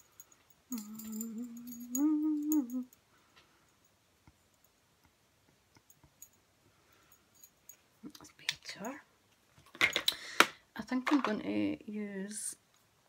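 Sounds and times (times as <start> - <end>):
woman humming: 0.7 - 3.0.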